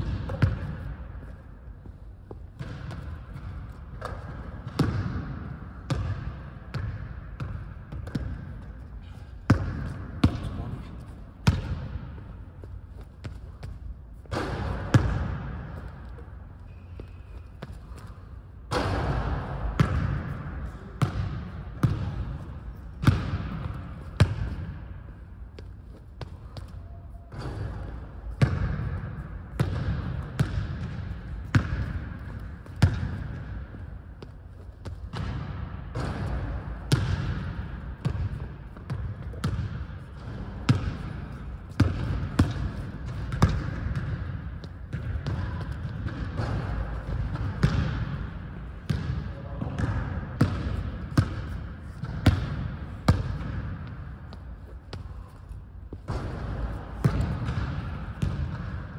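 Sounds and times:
basketball bouncing on hardwood floor: 0.0s - 0.9s, 2.6s - 8.6s, 9.5s - 10.6s, 28.4s - 48.3s, 48.9s - 55.2s, 56.0s - 58.9s.

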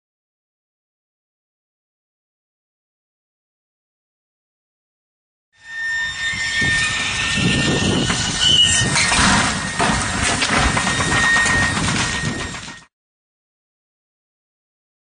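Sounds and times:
brief squeal: 5.6s - 12.9s
truck engine whining: 5.6s - 12.9s
sharp knocks and rattling: 7.0s - 12.9s.

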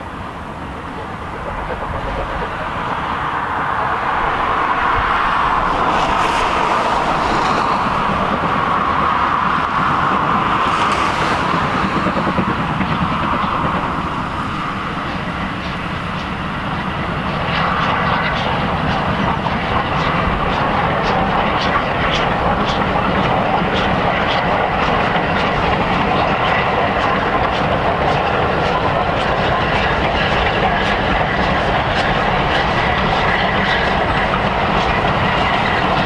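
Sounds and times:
steam locomotive running past: 0.0s - 36.0s
wheels clicking over rail joints: 9.5s - 36.0s.

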